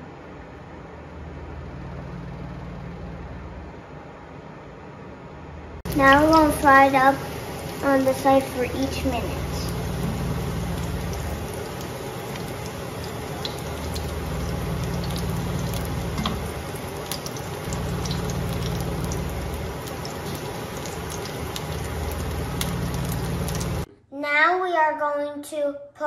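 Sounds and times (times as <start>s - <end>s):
low hum: 0.0s - 7.9s, 8.6s - 23.9s
eggplant sizzling in a frying pan: 5.9s - 23.9s.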